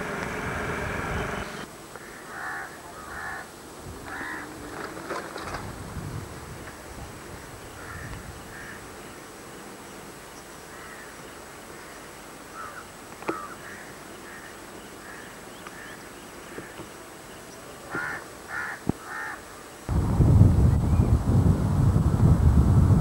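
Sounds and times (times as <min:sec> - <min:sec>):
crows cawing: 0:02.0 - 0:03.5, 0:04.1 - 0:04.5, 0:07.8 - 0:08.8, 0:10.7 - 0:11.2, 0:11.8 - 0:16.8, 0:17.9 - 0:19.4.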